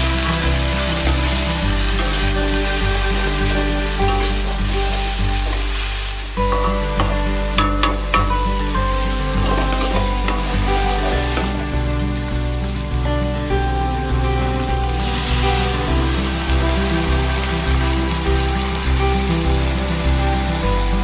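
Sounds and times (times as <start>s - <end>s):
background music: 0.0s - 21.0s
food sizzling in a wok: 0.0s - 21.0s
metal spatula scraping a wok: 1.0s - 11.8s
spatula clinking against pan: 6.5s - 8.5s, 9.4s - 11.6s.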